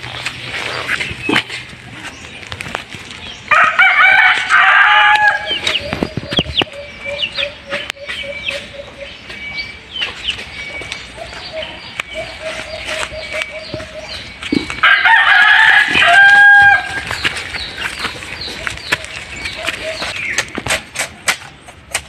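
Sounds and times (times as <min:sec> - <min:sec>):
rooster crowing: 0:03.5 - 0:05.6, 0:14.8 - 0:17.0.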